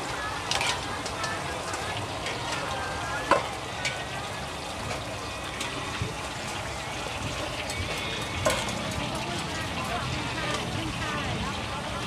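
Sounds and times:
food sizzling in a wok: 0.0 - 12.0
metal spatula scraping and clanking: 0.4 - 4.2, 7.4 - 9.9.

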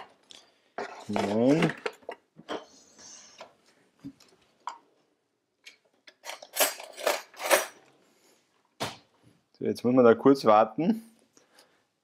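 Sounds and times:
kitchen things clicking and knocking: 0.0 - 2.8, 5.6 - 7.8
metal cutlery clattering: 6.1 - 7.8.

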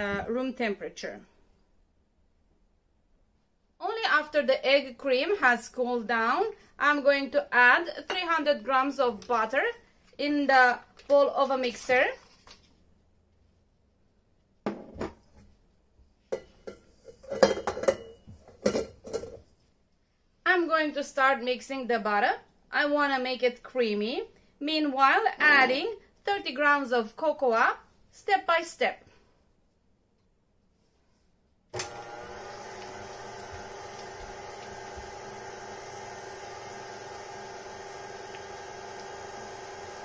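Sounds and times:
stand mixer whisking butter: 31.8 - 40.0.

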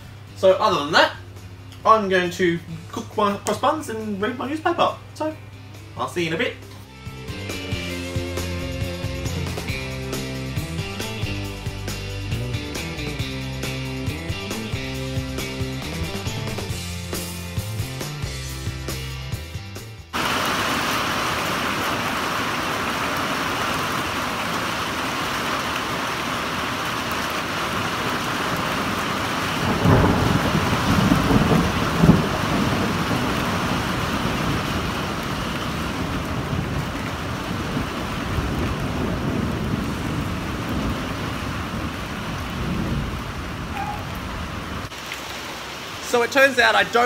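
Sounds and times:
heavy rain falling: 7.3 - 17.3, 20.1 - 47.0
thunder rumbling: 20.2 - 44.9.

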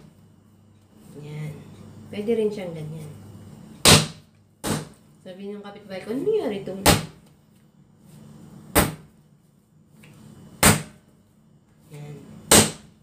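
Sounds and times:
soft dough handling noise: 0.0 - 3.8, 7.2 - 12.4
dough slapped onto mat: 3.8 - 5.0, 8.7 - 9.1, 10.6 - 11.0.

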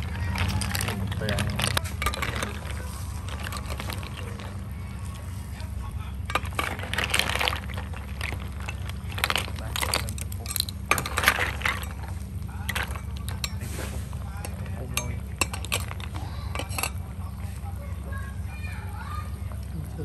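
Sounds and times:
snail shells clinking on metal pan: 0.0 - 5.2, 6.3 - 17.1.

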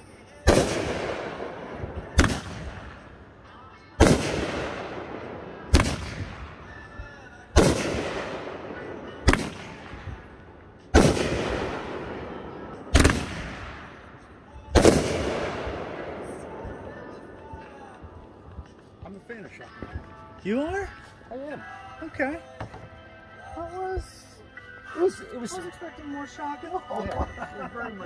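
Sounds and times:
fireworks bangs: 0.0 - 3.2, 4.0 - 6.9, 7.5 - 18.6
rumbling echo: 0.4 - 6.9, 7.5 - 18.8.

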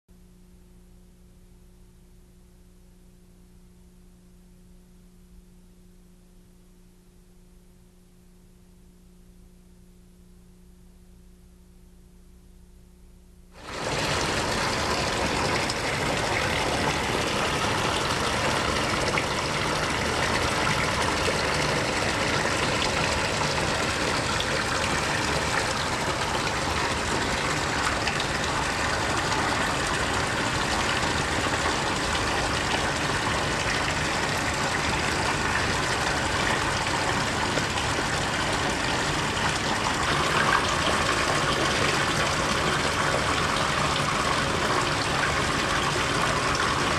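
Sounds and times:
running water: 13.6 - 46.9.

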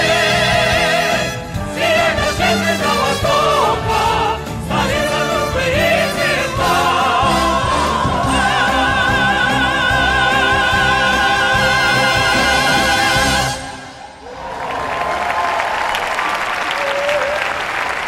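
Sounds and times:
operatic singing: 0.0 - 14.2.

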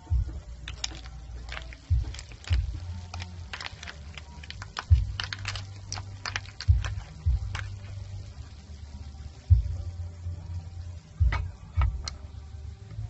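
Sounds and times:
snail shells clattering in pan: 0.6 - 8.5
dull low thumps: 4.9 - 5.3, 9.5 - 9.9.

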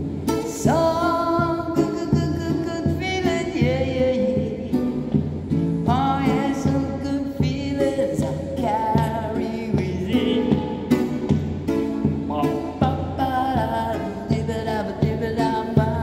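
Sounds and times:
acoustic guitar strumming: 0.0 - 16.0
man singing: 0.3 - 11.4, 12.2 - 16.0.

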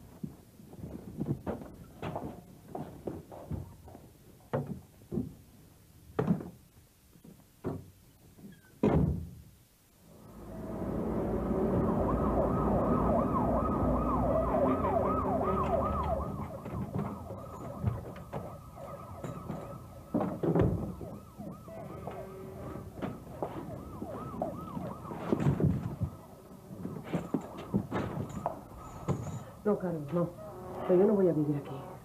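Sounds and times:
door knocks and thuds: 8.8 - 9.4, 19.4 - 21.2
low traffic rumble: 9.9 - 32.0
emergency siren yelping: 10.1 - 32.0.

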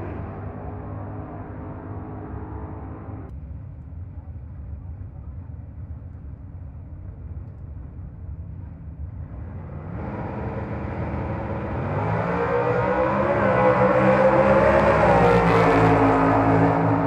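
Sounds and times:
drag race car engine: 9.2 - 17.0.

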